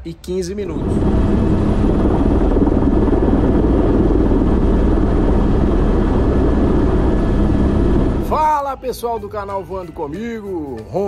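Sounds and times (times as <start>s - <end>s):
helicopter turbine and rotor: 0.6s - 8.4s.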